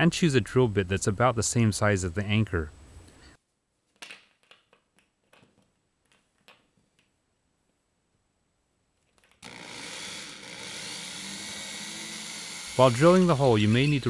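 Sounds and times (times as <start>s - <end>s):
electric drill boring into drywall: 9.4s - 14.0s.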